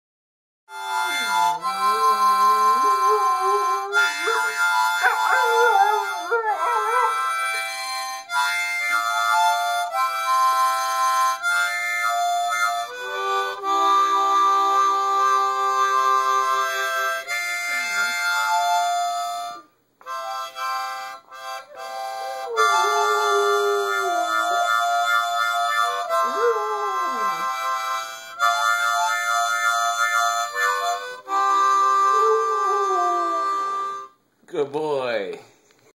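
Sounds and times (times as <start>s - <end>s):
harmonica chords: 0.7s - 34.3s
dog howling: 2.1s - 7.6s, 21.7s - 27.6s, 32.0s - 33.8s.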